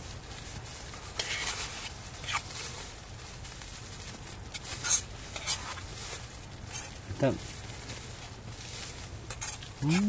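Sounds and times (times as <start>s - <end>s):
low steady hum: 0.0s - 10.0s
metal spoon scraping metal bowl: 4.6s - 5.8s, 9.3s - 9.7s.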